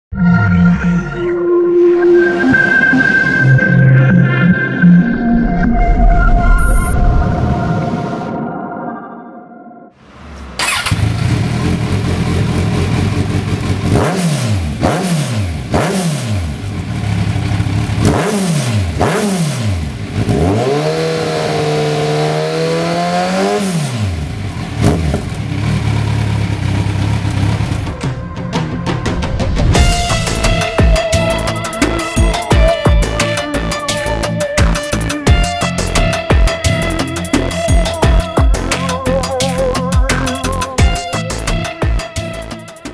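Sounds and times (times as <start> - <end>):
motorcycle engine revving: 10.0 - 28.7.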